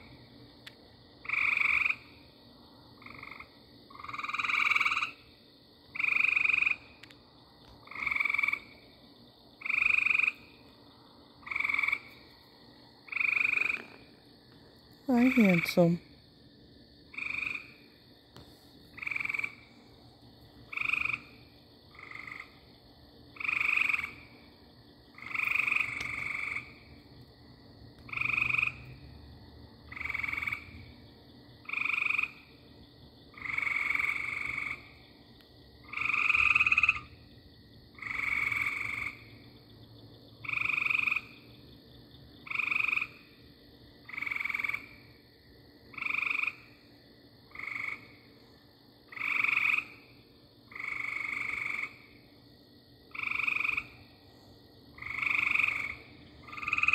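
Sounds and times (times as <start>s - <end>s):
frog calling: 1.2s - 2.2s, 3.0s - 5.3s, 5.9s - 7.1s, 7.8s - 8.8s, 9.6s - 10.6s, 11.4s - 12.2s, 13.0s - 14.1s, 15.1s - 16.0s, 17.1s - 17.9s, 18.9s - 19.8s, 20.7s - 22.6s, 23.3s - 24.4s, 25.2s - 26.8s, 28.1s - 28.9s, 29.9s - 30.9s, 31.6s - 32.6s, 33.3s - 35.0s, 35.8s - 37.3s, 38.0s - 39.4s, 40.4s - 41.5s, 42.4s - 43.4s, 44.1s - 45.1s, 45.9s - 46.9s, 47.5s - 48.2s, 49.1s - 52.2s, 53.1s - 56.9s.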